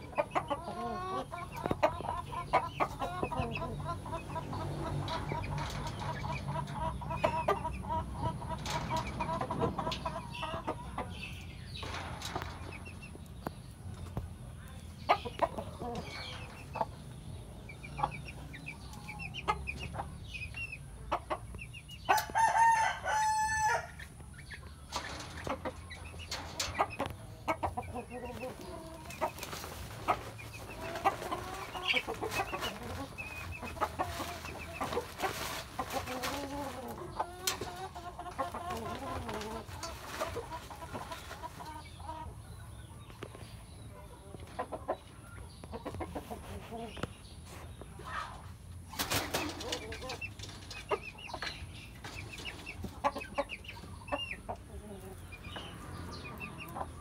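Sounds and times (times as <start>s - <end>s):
chickens clucking: 0.0s - 57.0s
rooster crowing: 22.2s - 24.0s.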